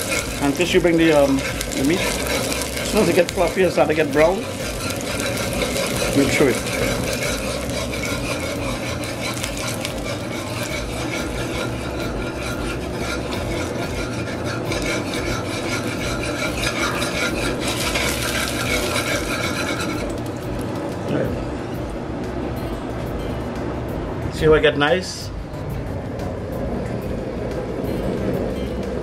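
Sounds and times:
metal spoon scraping a pot: 0.0s - 20.5s
sugar frothing in hot oil: 0.0s - 21.0s.

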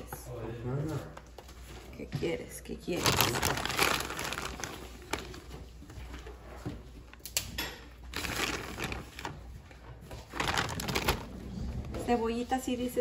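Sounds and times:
plastic bag crinkling: 2.8s - 6.3s, 8.0s - 12.0s.

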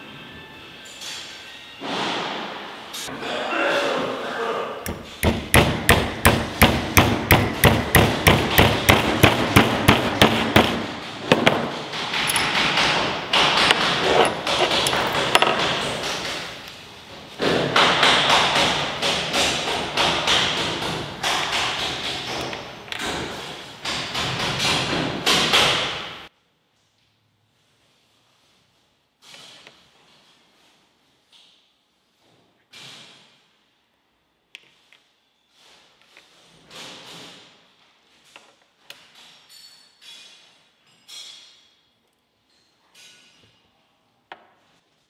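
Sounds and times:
hammer striking steel rod: 4.9s - 10.8s.

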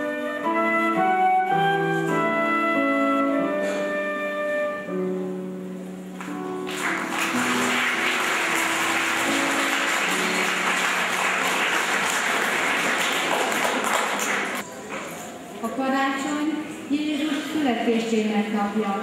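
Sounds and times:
instrumental music: 0.0s - 14.6s
audience applauding: 6.2s - 14.6s.

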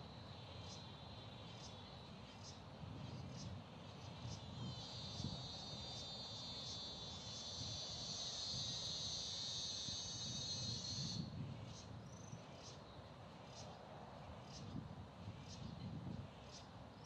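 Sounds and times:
insect buzzing high pitch: 4.7s - 11.3s.

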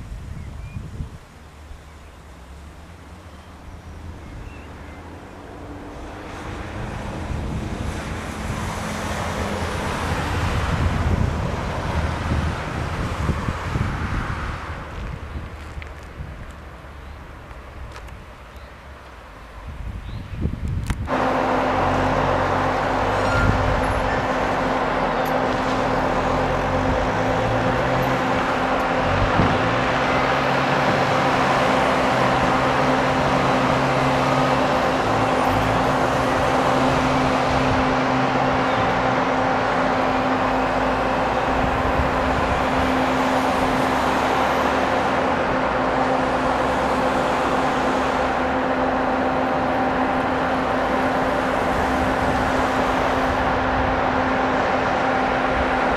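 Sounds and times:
diesel engine working: 0.0s - 55.9s
ventilation fan droning: 19.7s - 55.9s.

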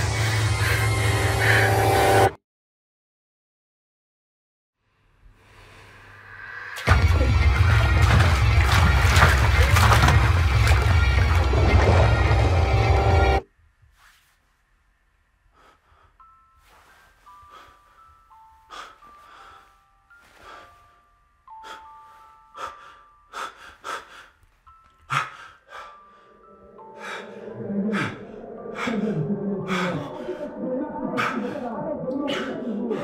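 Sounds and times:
eerie music of held notes: 24.8s - 33.0s.

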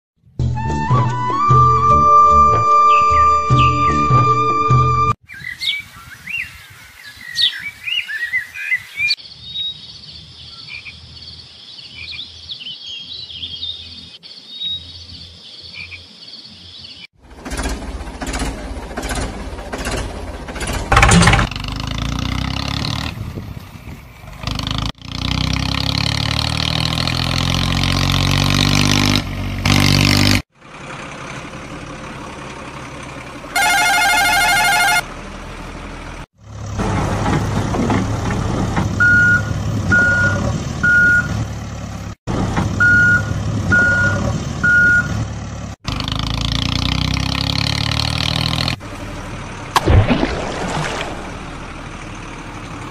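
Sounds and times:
truck engine revving: 17.2s - 23.6s, 24.2s - 52.9s
reversing beeps: 33.6s - 35.0s, 39.0s - 41.4s, 42.8s - 45.2s
warbling electronic tone: 33.6s - 35.0s.

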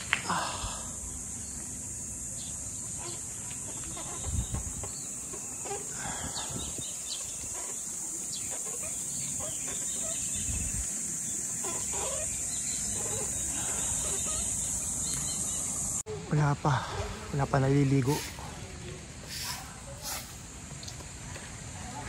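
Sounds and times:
high-pitched insect buzz: 0.2s - 16.0s.

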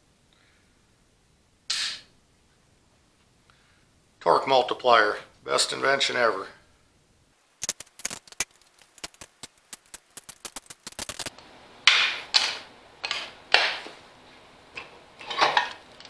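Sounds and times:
hand ratchet clicking: 7.6s - 11.3s.

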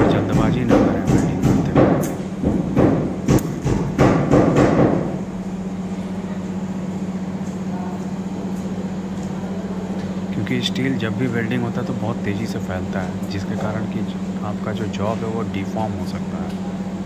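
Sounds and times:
sharp knocks: 0.0s - 5.2s.

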